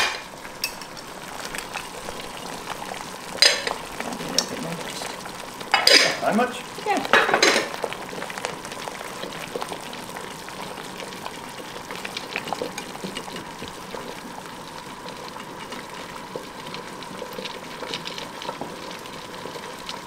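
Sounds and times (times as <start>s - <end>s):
jam bubbling and popping: 0.0s - 20.0s
wooden spoon stirring: 1.6s - 7.7s, 11.6s - 14.3s.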